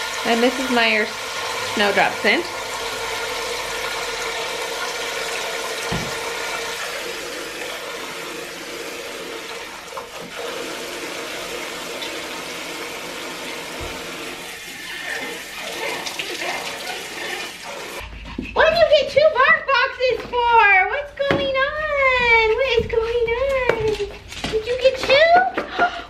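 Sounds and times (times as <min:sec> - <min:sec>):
faucet running into sink: 0:00.0 - 0:18.0
dull knock: 0:05.9 - 0:06.3.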